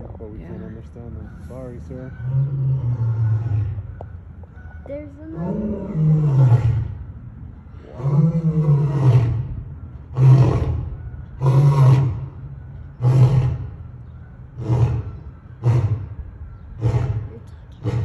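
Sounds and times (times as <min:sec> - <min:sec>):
lion roaring: 0:02.1 - 0:03.8, 0:05.4 - 0:07.0, 0:07.8 - 0:13.8, 0:14.6 - 0:16.2, 0:16.8 - 0:18.0.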